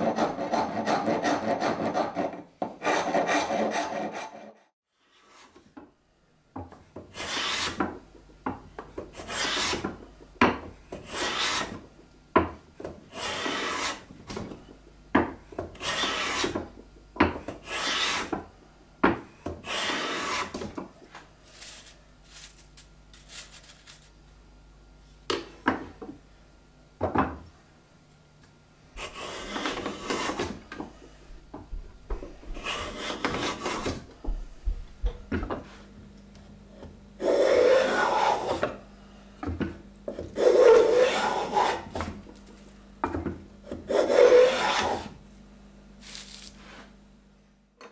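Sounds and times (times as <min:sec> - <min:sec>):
hand plane rasping strokes: 0:00.0 - 0:05.5, 0:07.1 - 0:07.8, 0:09.1 - 0:09.9, 0:11.0 - 0:11.8, 0:13.1 - 0:14.1, 0:15.8 - 0:16.6, 0:17.6 - 0:18.3, 0:19.6 - 0:20.6, 0:29.0 - 0:30.6, 0:32.5 - 0:34.0, 0:37.2 - 0:38.8, 0:40.1 - 0:42.1, 0:43.7 - 0:45.2.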